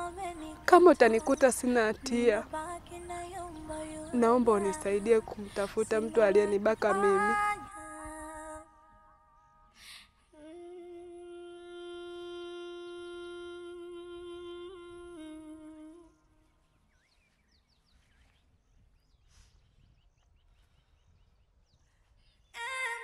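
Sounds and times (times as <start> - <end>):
woman humming long note: 10.3 - 16.4.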